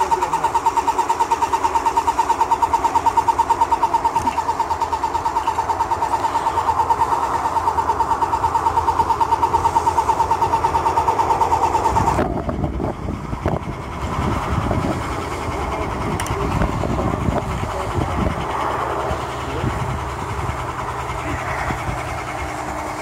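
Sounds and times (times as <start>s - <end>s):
low rumbling: 0.0s - 23.0s
paint sprayer pump buzzing: 0.0s - 23.0s.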